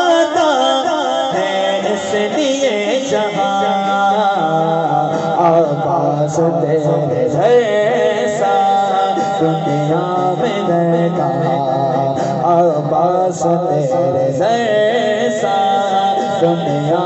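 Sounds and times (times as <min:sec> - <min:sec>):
man singing into microphone: 0:00.0 - 0:17.0.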